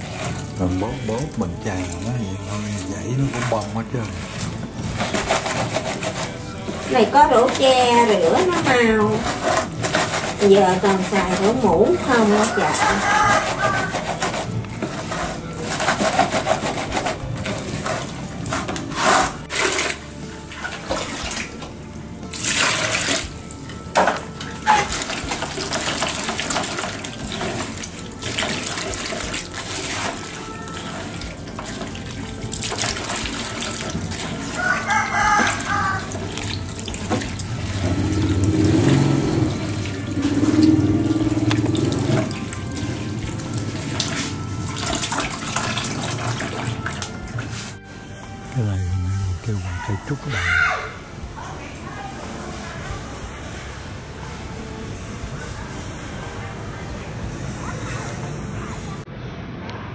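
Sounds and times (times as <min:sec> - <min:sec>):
water splashes: 0:00.0 - 0:14.0, 0:19.2 - 0:21.7, 0:22.3 - 0:47.5
water sloshing in basin: 0:00.0 - 0:47.8.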